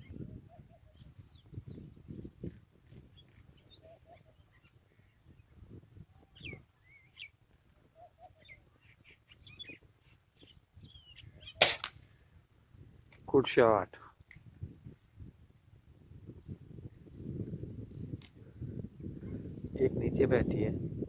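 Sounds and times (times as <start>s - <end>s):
small birds chirping: 0.0s - 11.9s, 16.3s - 19.9s.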